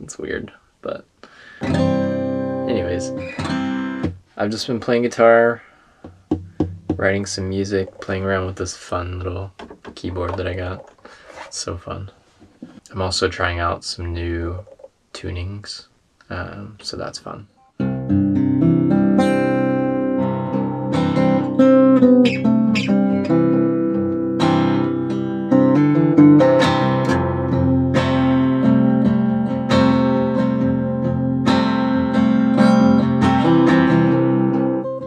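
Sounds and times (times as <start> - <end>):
fingerpicked acoustic guitar: 1.6 - 4.2, 17.7 - 35.0.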